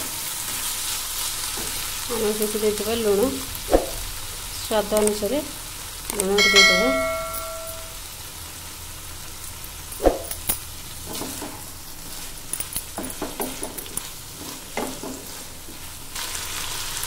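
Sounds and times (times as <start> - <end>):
low sizzle of frying: 0.0 - 17.0
wooden spatula scraping a pan: 13.1 - 15.9.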